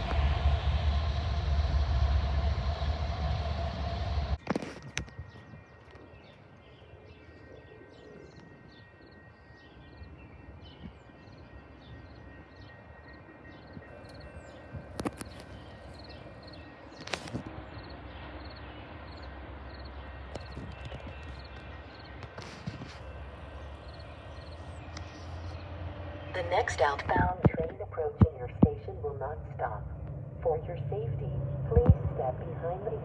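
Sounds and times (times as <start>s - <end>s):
distant traffic hum: 0.0s - 33.0s
small birds chirping: 5.1s - 27.0s.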